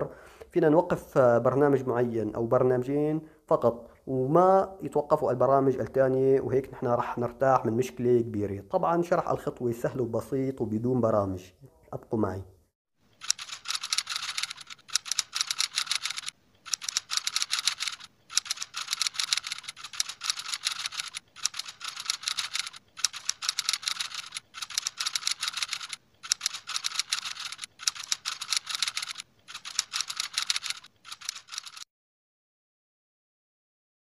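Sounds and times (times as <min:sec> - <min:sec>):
keyboard typing clicks: 0:13.2 - 0:31.8.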